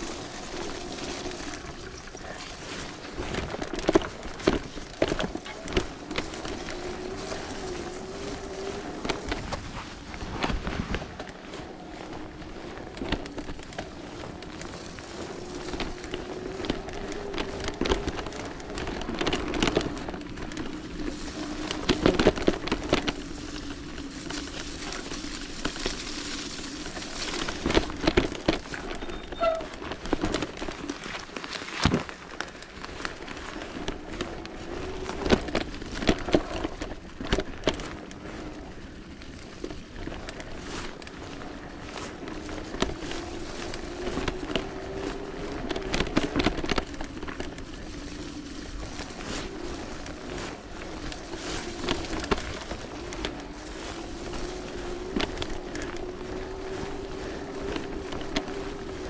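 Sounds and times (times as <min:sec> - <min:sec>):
bike knocks and rattles: 0:00.0 - 0:59.0
electric bike motor whining: 0:32.7 - 0:59.0.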